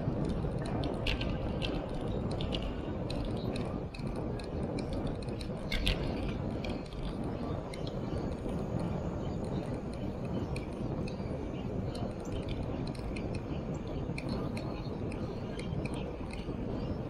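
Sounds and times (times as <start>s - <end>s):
wind and tyre rumble: 0.0s - 17.0s
bike clicks and rattles: 0.2s - 13.4s.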